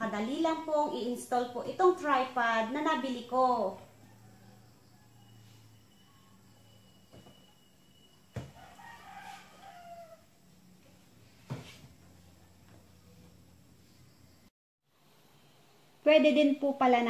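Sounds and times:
rooster crowing: 3.6s - 10.6s.

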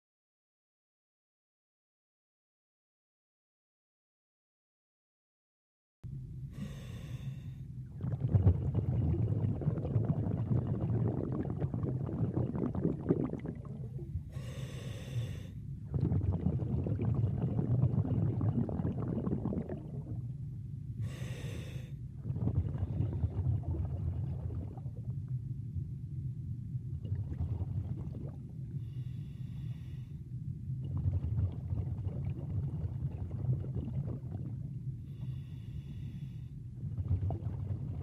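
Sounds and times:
low rumble: 6.0s - 38.0s
exhaled breath rushing: 6.5s - 7.7s, 14.2s - 15.7s, 21.0s - 22.0s, 28.7s - 30.3s, 35.0s - 36.6s
diver inhaling underwater: 6.5s - 20.3s, 21.0s - 25.0s, 27.2s - 30.4s, 35.0s - 37.6s.

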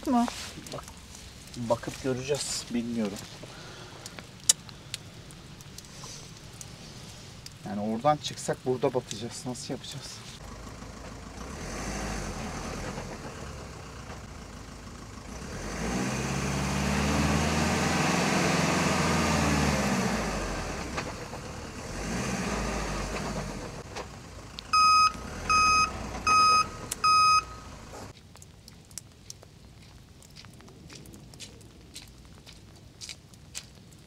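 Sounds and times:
engine revving hard: 11.3s - 13.7s, 15.2s - 23.8s
short loud beeps: 24.8s - 27.7s.

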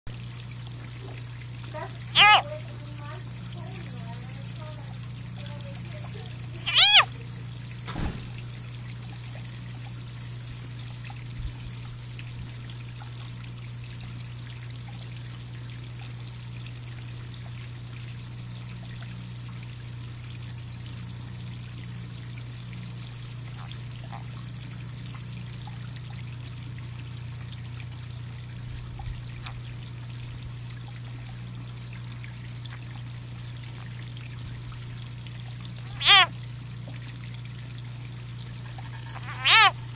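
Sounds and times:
frog distress scream: 1.8s - 2.6s, 6.5s - 7.2s, 35.8s - 36.4s, 38.9s - 39.9s.

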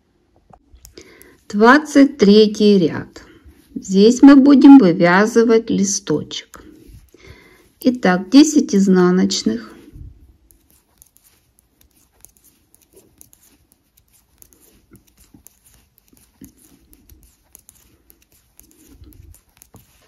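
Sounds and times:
knitting needles clicking: 0.6s - 1.4s, 10.4s - 20.0s
yarn rustling: 6.4s - 20.0s.

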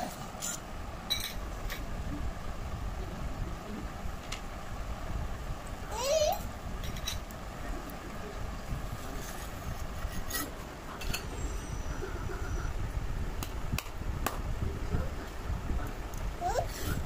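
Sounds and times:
knife scraping metal bowl: 9.2s - 11.3s.

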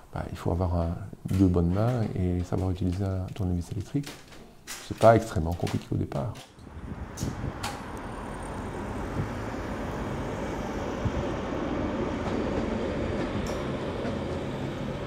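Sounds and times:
train rumbling: 6.6s - 15.0s.

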